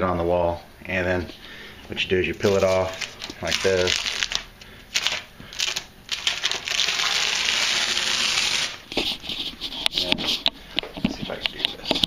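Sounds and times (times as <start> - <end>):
tape ripping and crinkling: 2.3 - 9.4
masking tape peeling: 2.3 - 10.0.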